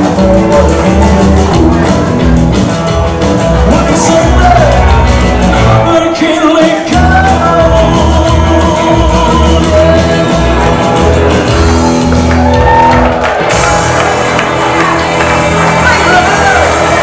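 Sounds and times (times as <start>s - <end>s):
man singing: 0.0s - 2.8s, 3.4s - 11.7s
electric guitar: 0.0s - 17.0s
upright double bass: 0.0s - 17.0s.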